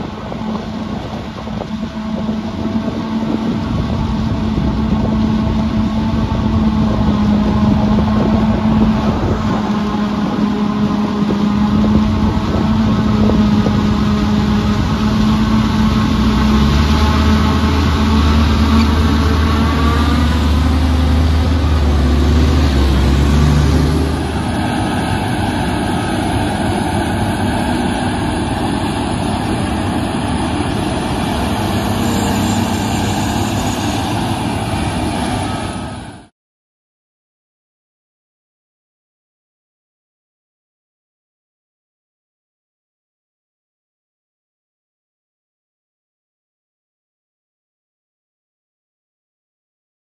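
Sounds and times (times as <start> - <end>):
forage harvester running: 0.0 - 36.3
tractor engine low hum: 0.0 - 36.3.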